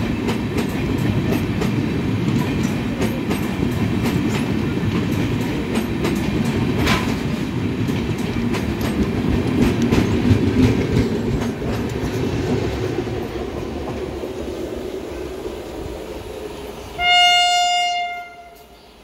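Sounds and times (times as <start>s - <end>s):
train rumbling past: 0.0s - 19.0s
wheels clattering over rail joints: 0.2s - 12.6s.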